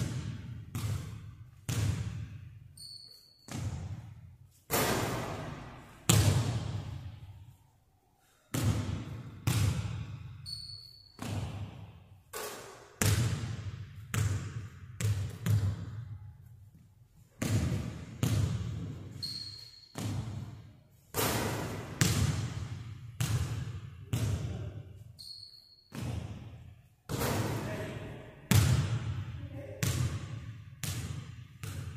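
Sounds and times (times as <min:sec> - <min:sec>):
basketball bouncing on hardwood floor: 0:00.0 - 0:02.3, 0:03.5 - 0:04.1, 0:06.1 - 0:06.9, 0:08.5 - 0:10.1, 0:11.2 - 0:11.8, 0:12.4 - 0:16.0, 0:17.4 - 0:19.1, 0:19.9 - 0:20.6, 0:21.2 - 0:24.5, 0:25.9 - 0:26.5, 0:28.5 - 0:29.2, 0:29.8 - 0:31.9
short high squeak: 0:02.8 - 0:03.5, 0:10.5 - 0:11.2, 0:19.2 - 0:19.9, 0:25.2 - 0:25.9.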